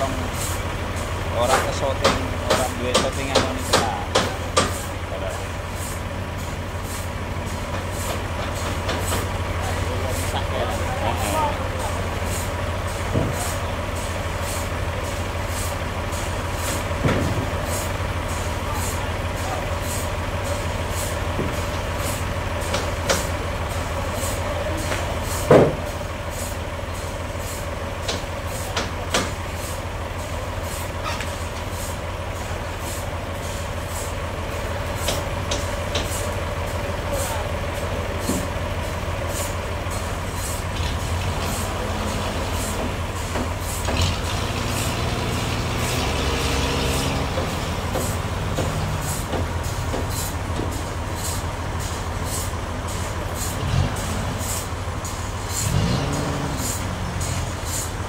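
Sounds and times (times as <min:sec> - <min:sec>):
forklift engine running: 0:00.0 - 0:58.0
knocks of wood and steel: 0:01.4 - 0:04.9, 0:16.6 - 0:17.8, 0:21.4 - 0:23.3, 0:24.9 - 0:25.9, 0:28.0 - 0:29.4.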